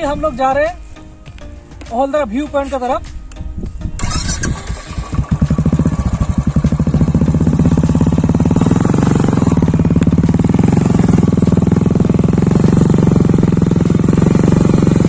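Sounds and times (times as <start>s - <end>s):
motorcycle engine: 3.9s - 15.0s.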